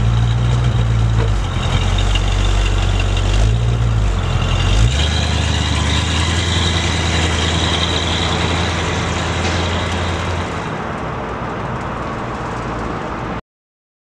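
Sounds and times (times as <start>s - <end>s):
car engine pulling away: 0.0s - 11.2s.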